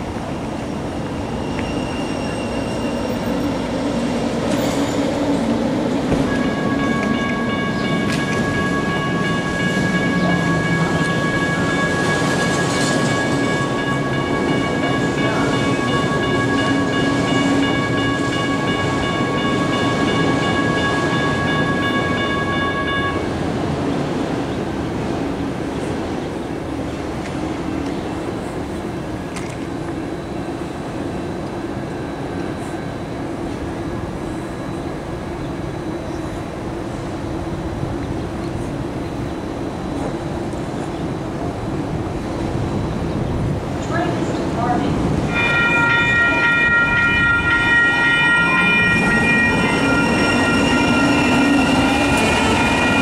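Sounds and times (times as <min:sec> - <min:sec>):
electronic crossing bell ringing: 0:06.4 - 0:23.3, 0:45.3 - 0:53.0.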